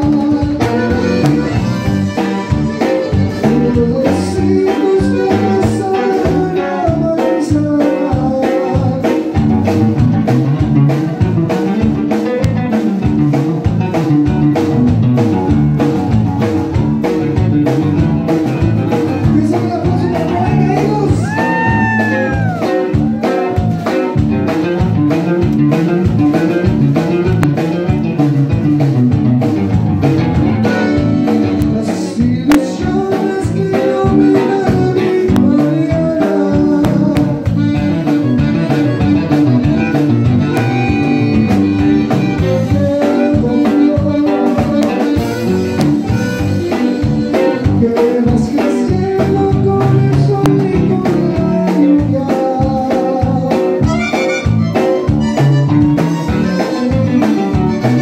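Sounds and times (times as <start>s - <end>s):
bass guitar: 0.0s - 58.0s
drum kit steady beat: 0.0s - 58.0s
electric guitar: 0.0s - 58.0s
button accordion: 0.2s - 6.6s, 30.4s - 31.8s, 36.8s - 48.2s, 53.6s - 58.0s.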